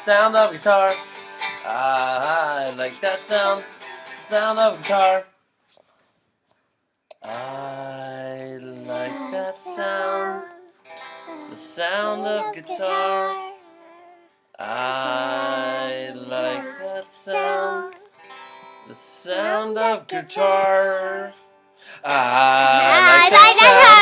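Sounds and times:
guitar strumming: 0.0 - 5.1, 8.8 - 13.0, 17.2 - 20.7, 22.0 - 24.0
person singing: 1.6 - 3.6, 7.2 - 18.1, 18.9 - 24.0.

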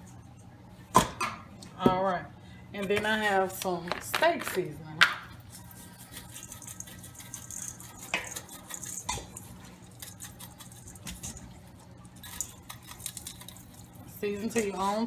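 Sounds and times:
seasoning rattling from shaker: 5.4 - 15.0.

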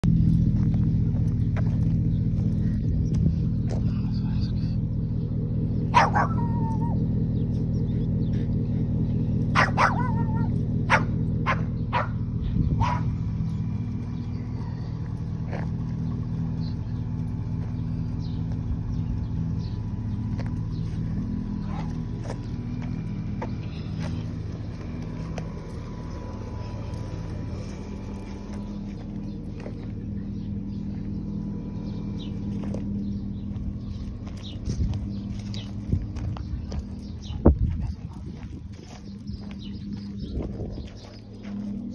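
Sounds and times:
low droning hum: 0.0 - 41.9
dog barking: 5.9 - 7.0, 9.5 - 12.2, 12.8 - 13.2.

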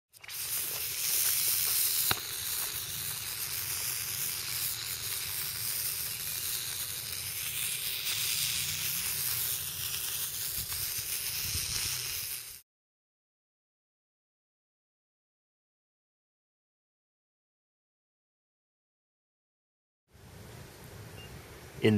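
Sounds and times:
sodium hissing and fizzing on water: 0.1 - 12.6.

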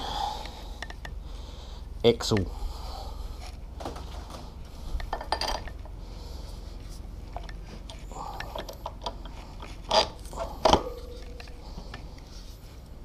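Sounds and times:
metal knocking and scraping: 3.4 - 5.9, 7.3 - 12.2.

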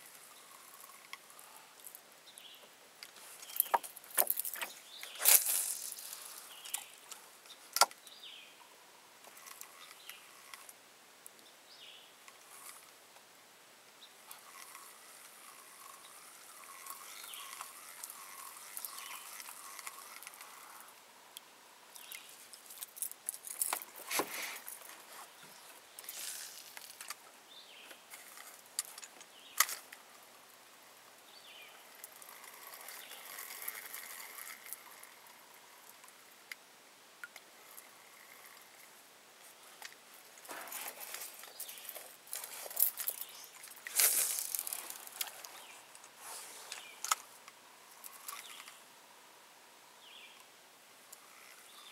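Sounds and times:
fishing gear clicks and knocks: 3.0 - 8.0, 21.9 - 27.2, 39.8 - 47.3.

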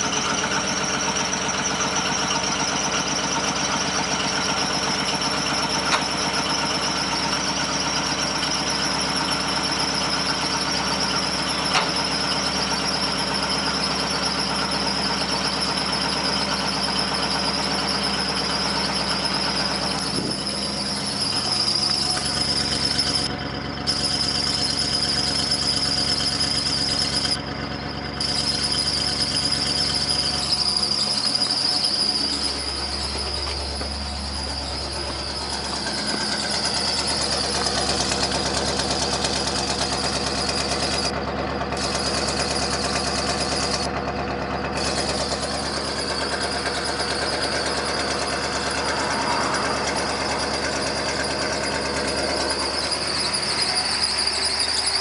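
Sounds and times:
van engine idling: 0.0 - 55.0
steady high-pitched whine: 45.8 - 55.0.

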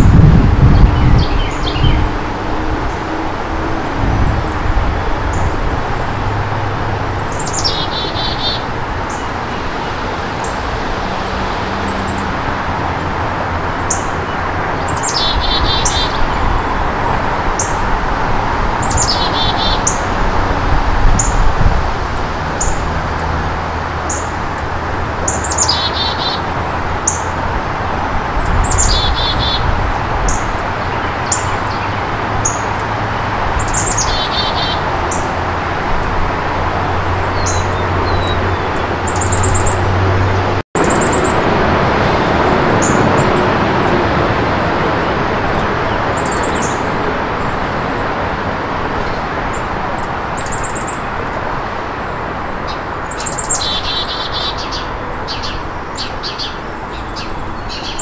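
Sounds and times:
steady low rumble: 2.8 - 6.8
chickadee calling: 4.3 - 12.6, 13.7 - 16.6, 18.8 - 20.2, 24.0 - 27.4, 28.4 - 32.9, 33.6 - 36.2, 37.2 - 40.2, 40.8 - 41.5, 52.7 - 58.0.

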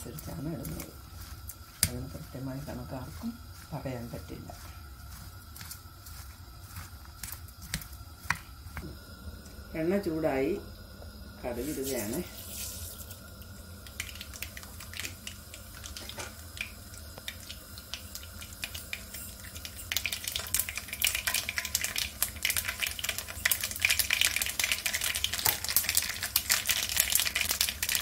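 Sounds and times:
seeds frying in hot oil: 0.0 - 28.0.

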